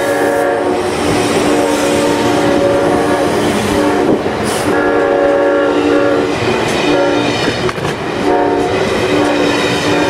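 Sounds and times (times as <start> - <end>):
locomotive chime horn blasts: 0.0 - 0.8, 1.4 - 7.3, 8.2 - 10.0
train wheel noise: 0.0 - 10.0.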